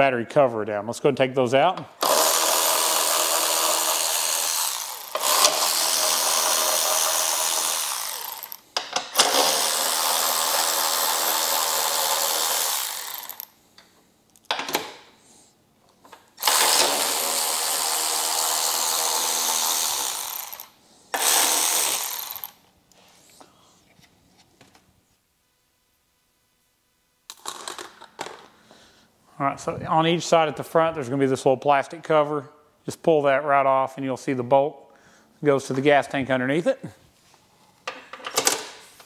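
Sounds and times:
cordless ratchet motor whining: 2.0s - 8.6s, 9.2s - 13.5s, 16.4s - 22.6s.

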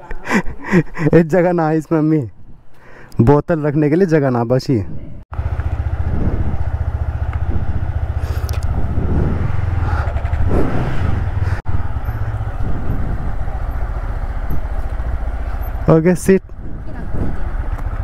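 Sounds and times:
motorcycle engine at low revs: 5.3s - 18.0s.

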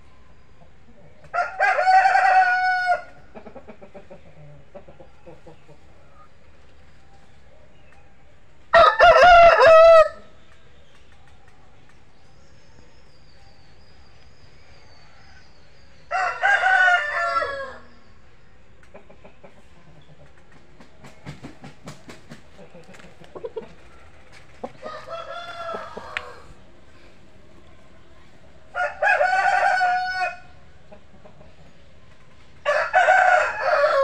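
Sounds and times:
rooster crowing: 1.3s - 3.1s, 8.7s - 10.2s, 16.1s - 18.0s, 24.8s - 26.6s, 28.7s - 30.5s, 32.6s - 34.0s.

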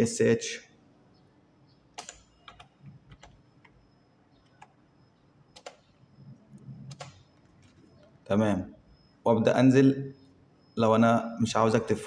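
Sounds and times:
keyboard keys clicking: 2.0s - 3.8s, 5.5s - 7.8s.

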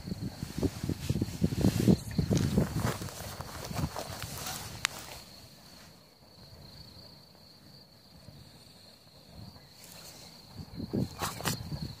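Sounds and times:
footsteps in grass: 0.0s - 5.9s
grass rustling: 0.0s - 6.0s.

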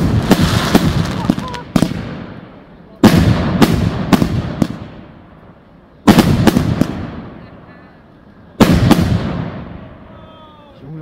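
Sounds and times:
firecracker bangs with echoes: 0.0s - 5.0s, 6.0s - 7.4s, 8.6s - 10.0s.

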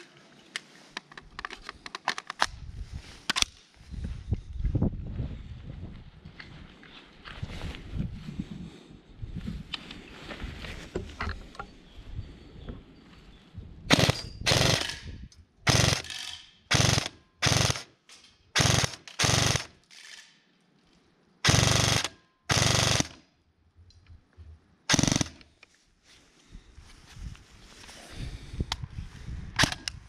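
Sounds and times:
airsoft gun full-auto bursts: 13.9s - 15.0s, 15.7s - 17.9s, 18.6s - 19.8s, 21.4s - 23.2s, 24.9s - 25.4s.

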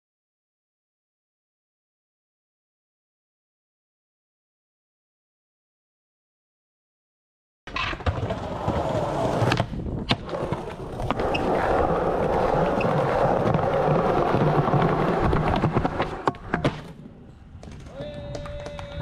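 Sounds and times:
skateboard wheels rolling on stone: 7.7s - 19.0s.

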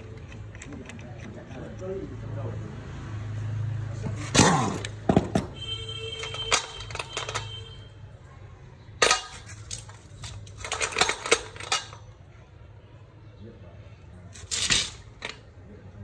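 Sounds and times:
metal tools clinking: 0.0s - 2.0s, 6.1s - 7.8s, 9.0s - 12.2s, 14.3s - 15.5s.

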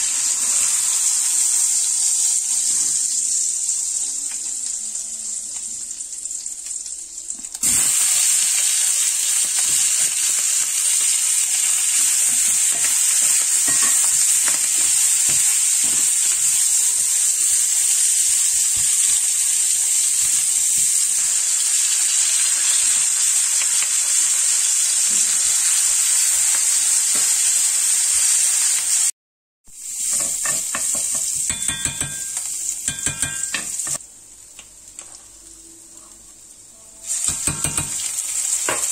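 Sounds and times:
food sizzling in a skillet: 0.0s - 29.1s, 29.7s - 38.9s
metal spoon clinking on pan: 12.7s - 16.0s, 30.1s - 34.0s, 37.2s - 38.1s.

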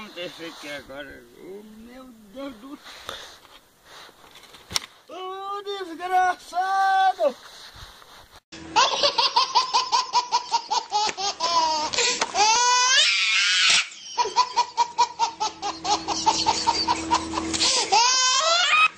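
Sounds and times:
baby laughing: 8.8s - 12.9s, 13.7s - 18.9s
baby squealing: 11.4s - 14.8s, 17.6s - 18.9s.

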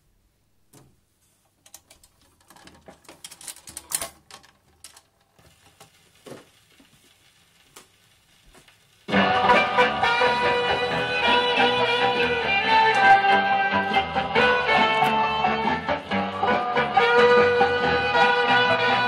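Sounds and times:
loud music from record: 9.1s - 19.0s.

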